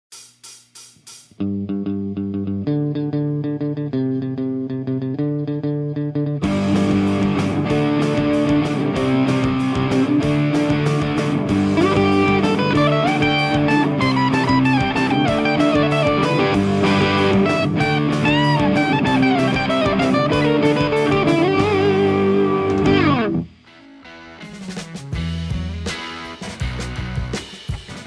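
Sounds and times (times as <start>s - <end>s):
steady drum beat: 0.0s - 1.4s, 6.4s - 23.2s, 24.4s - 28.0s
electric guitar rock tune: 1.4s - 28.0s.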